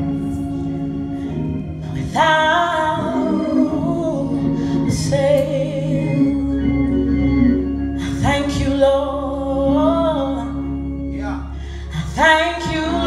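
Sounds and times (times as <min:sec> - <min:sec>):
deep bass note: 0:00.0 - 0:13.0
organ chords from a keyboard: 0:00.0 - 0:13.0
woman singing into a microphone: 0:01.8 - 0:07.4, 0:08.0 - 0:10.8, 0:11.9 - 0:13.0.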